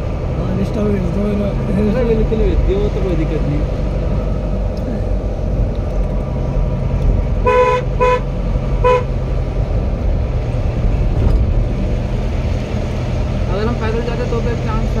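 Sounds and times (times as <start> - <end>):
vehicle engine rumbling: 0.0 - 15.0
vehicle horn toots: 7.4 - 9.1.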